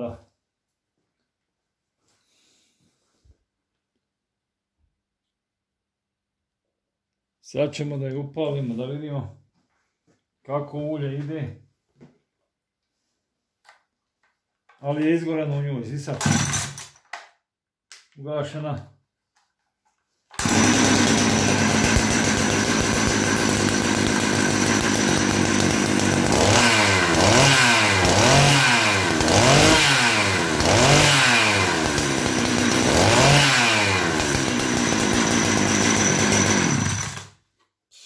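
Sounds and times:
chainsaw engine idling and revving: 20.4 - 37.4.

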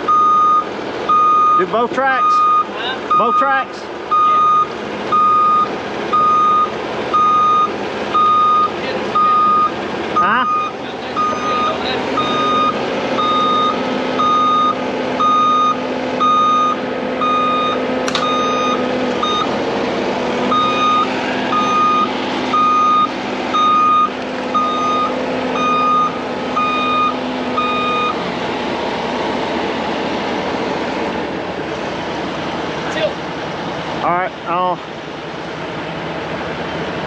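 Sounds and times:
diesel machine droning: 0.0 - 37.0
reversing alarm beeping: 0.1 - 19.5, 20.5 - 28.2
sharp click: 18.0 - 18.3.

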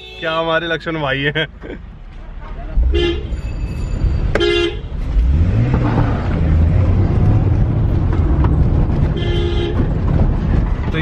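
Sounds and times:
car horn toot: 0.0 - 0.5, 2.4 - 5.0, 9.1 - 9.9
car engine revving: 4.0 - 11.0.

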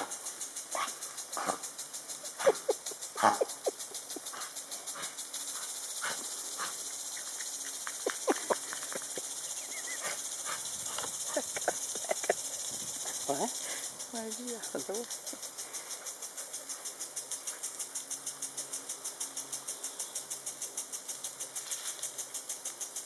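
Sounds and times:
lawn sprinkler ticking: 0.0 - 23.0
dog yipping: 2.4 - 3.4.

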